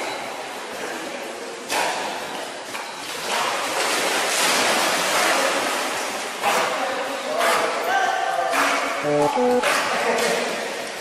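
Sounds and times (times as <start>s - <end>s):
water splashing and churning: 3.0s - 7.8s.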